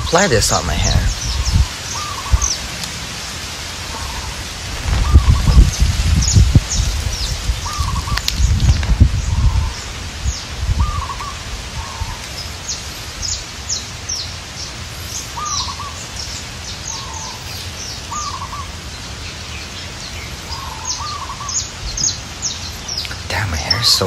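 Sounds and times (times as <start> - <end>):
low warbling bird call: 0.0 - 2.7, 3.8 - 12.3, 15.2 - 16.1, 16.8 - 18.8, 20.5 - 23.9.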